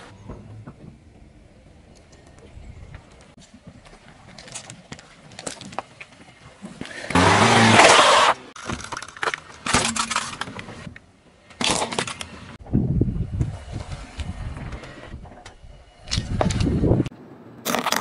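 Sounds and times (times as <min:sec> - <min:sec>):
plastic toy cracking under a tyre: 0:17.6 - 0:18.0.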